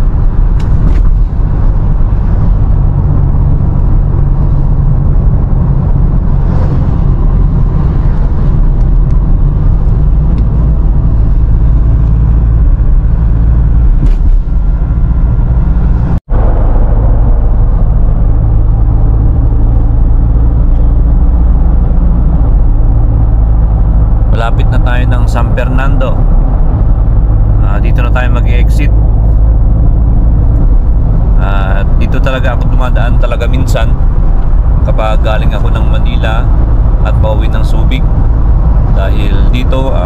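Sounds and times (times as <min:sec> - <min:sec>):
road and engine rumble: 0:00.0 - 0:40.0.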